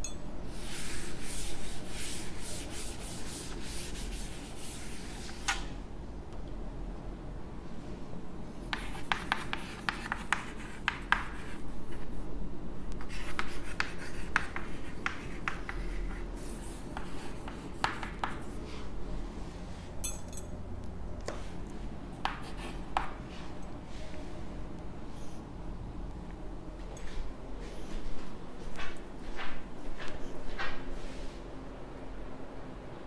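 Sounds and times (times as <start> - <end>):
chalk tapping and scratching: 0.6 - 5.6, 8.7 - 12.1, 13.0 - 18.8, 22.2 - 23.2.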